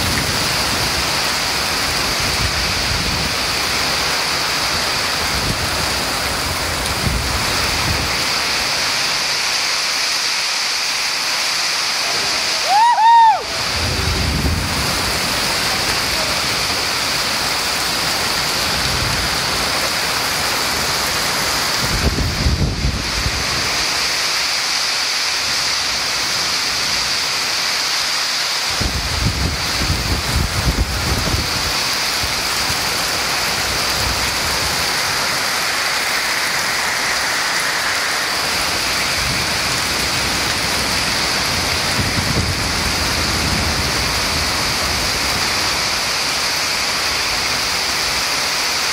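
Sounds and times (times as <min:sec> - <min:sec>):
heavy rain: 0:00.0 - 0:48.9
wind gusts buffeting: 0:12.1 - 0:24.2, 0:28.7 - 0:48.3.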